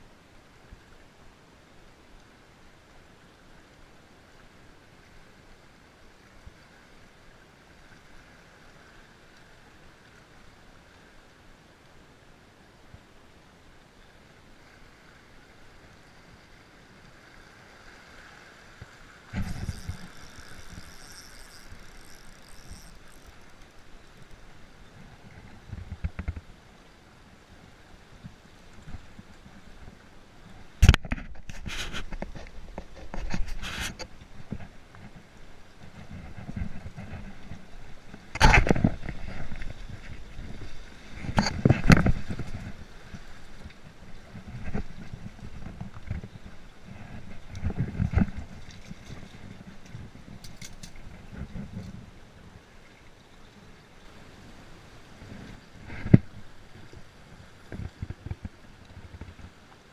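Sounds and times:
wind rumble on microphone: 18.8s - 23.5s, 24.1s - 26.7s, 27.5s - 52.7s, 54.0s - 59.9s
high whine from reel: 19.3s - 24.8s
fishing reel winding: 19.4s - 24.0s
fishing rod handling bumps: 19.4s - 24.4s.

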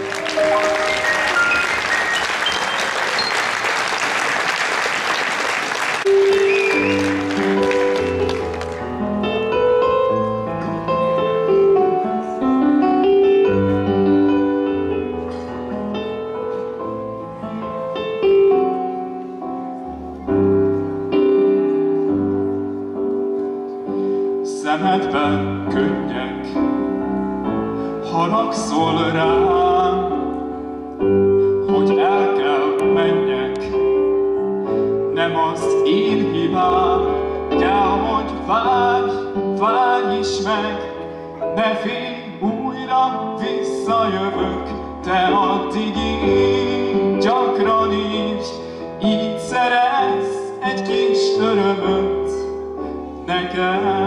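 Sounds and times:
electric keyboard chords: 0.0s - 3.9s, 5.9s - 54.0s
man singing with vibrato: 24.4s - 27.0s, 27.8s - 54.0s.

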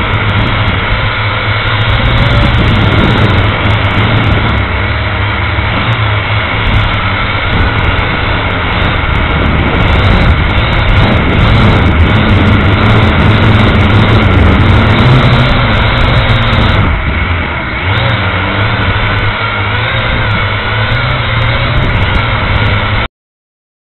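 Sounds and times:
drone motors buzzing: 0.0s - 23.1s.

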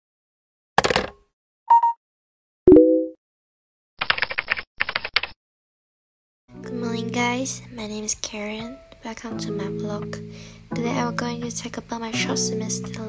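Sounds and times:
short beep: 1.7s - 2.0s.

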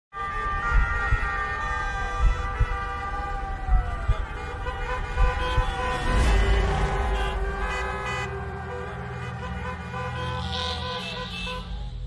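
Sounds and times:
city street traffic: 0.1s - 12.0s
siren wailing: 0.2s - 11.8s
low thuds: 0.6s - 7.2s.

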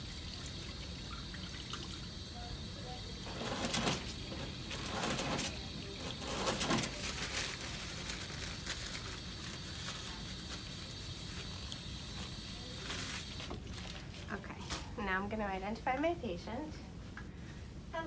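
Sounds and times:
paper towels rustling: 3.2s - 14.4s.

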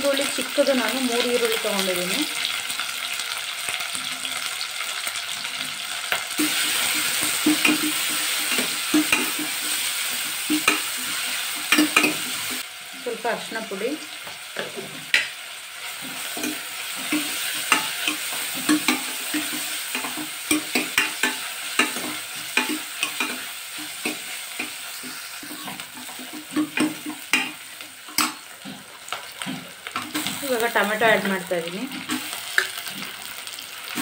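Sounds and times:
onions sizzling in hot oil: 0.0s - 34.0s.

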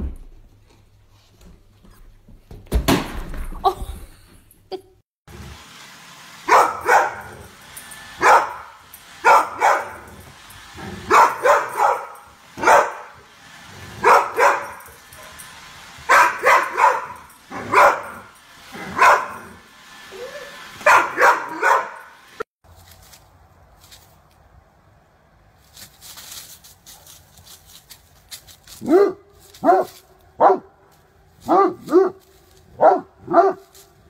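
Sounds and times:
dog barking: 6.5s - 7.5s, 8.2s - 10.2s, 11.0s - 13.2s, 14.0s - 15.3s, 16.1s - 19.6s, 20.8s - 22.2s, 28.8s - 30.8s, 31.4s - 32.2s, 32.8s - 33.7s.

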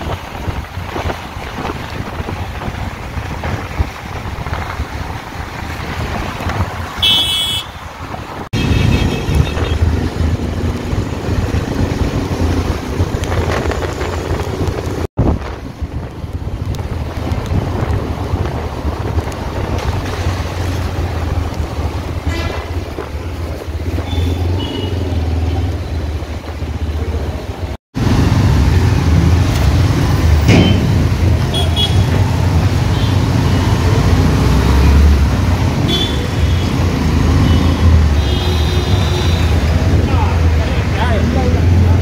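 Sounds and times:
wind: 0.0s - 42.0s.

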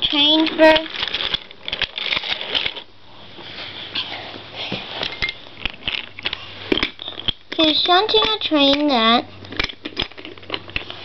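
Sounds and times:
toy clicks and rattles: 0.0s - 2.8s
rustling: 0.0s - 7.2s.

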